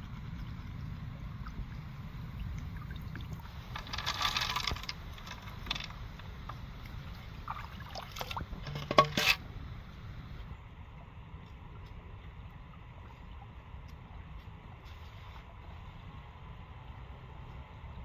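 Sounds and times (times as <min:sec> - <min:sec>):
snail shells clicking and rattling: 0:03.6 - 0:06.6.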